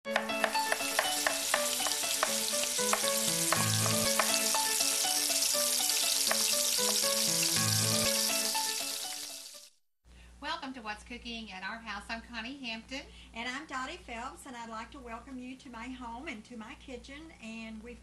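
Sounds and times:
theme music with bass line: 0:00.1 - 0:09.1
food sizzling in a pan: 0:00.1 - 0:09.8.

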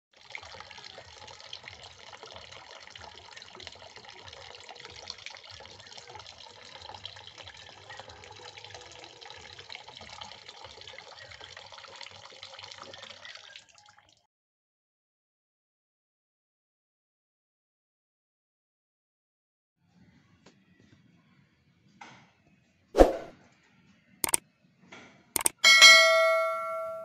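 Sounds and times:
tap water running into a bucket: 0:00.1 - 0:14.2.

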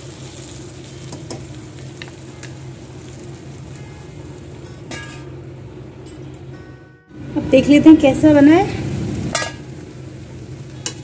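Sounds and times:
food sizzling in a pan: 0:00.0 - 0:06.0, 0:07.2 - 0:11.0
metal lid clanking onto pan: 0:04.9 - 0:05.3, 0:09.3 - 0:09.7.

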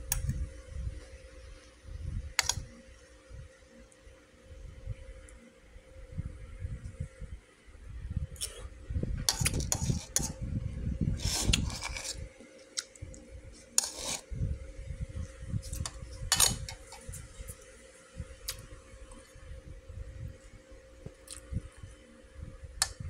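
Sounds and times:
spoon scraping a bowl: 0:09.3 - 0:10.4, 0:11.2 - 0:12.3, 0:13.5 - 0:14.3, 0:15.6 - 0:17.2.

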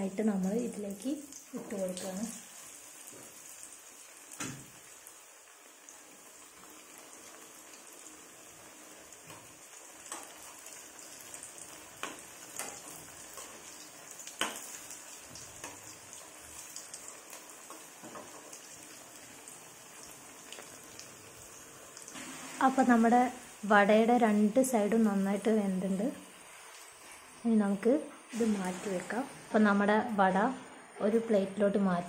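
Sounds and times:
oil sizzling: 0:00.0 - 0:31.8
sharp pops in frying oil: 0:04.3 - 0:05.0, 0:09.2 - 0:19.0, 0:20.4 - 0:21.1.

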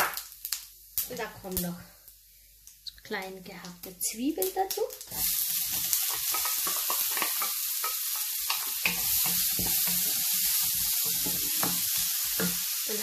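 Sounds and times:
onions sizzling in oil: 0:00.0 - 0:13.0
wooden spoon scraping a pan: 0:05.1 - 0:12.6.

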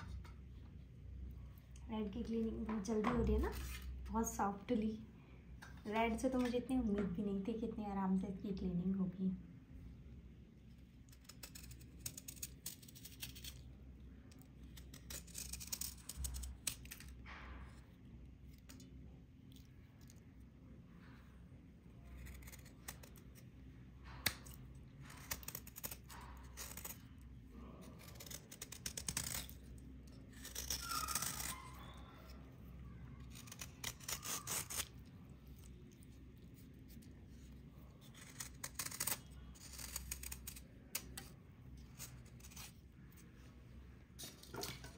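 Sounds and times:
scraper rasping off dried crust: 0:25.0 - 0:32.4, 0:33.2 - 0:42.8.

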